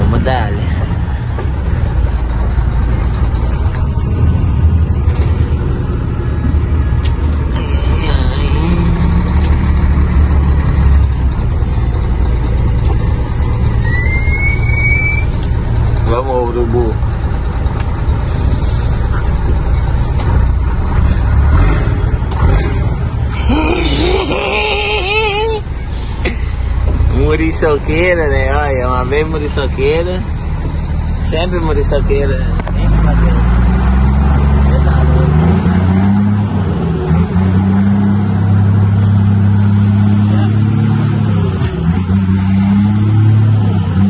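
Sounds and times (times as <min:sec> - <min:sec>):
diesel truck engine rumbling: 0:00.0 - 0:44.0.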